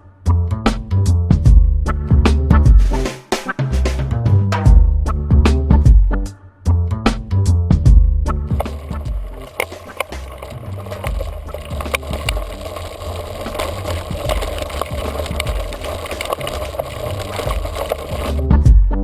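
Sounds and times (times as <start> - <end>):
bicycle rattling on rough track: 8.6 - 18.5.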